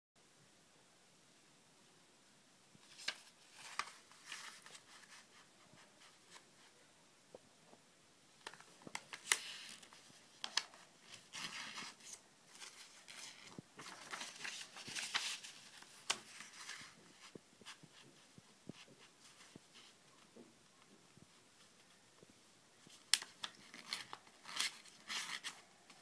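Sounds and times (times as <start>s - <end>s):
paper rustling and crackling: 2.8s - 6.7s, 8.4s - 20.2s, 22.8s - 26.0s.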